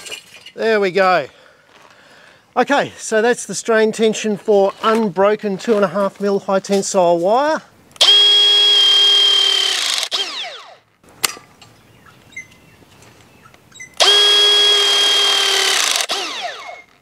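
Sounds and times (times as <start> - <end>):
crimping tool motor whining: 8.0 - 10.8, 13.9 - 17.0.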